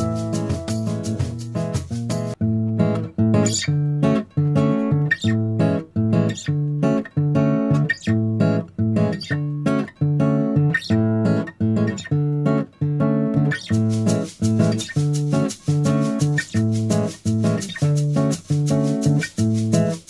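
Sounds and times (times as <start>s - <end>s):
plucked acoustic guitar chords: 0.0s - 20.0s.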